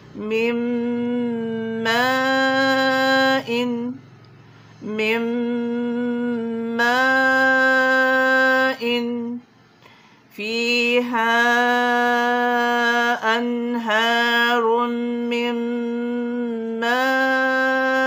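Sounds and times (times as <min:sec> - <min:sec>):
woman chanting: 0:00.0 - 0:04.2, 0:04.8 - 0:09.5, 0:10.3 - 0:18.0.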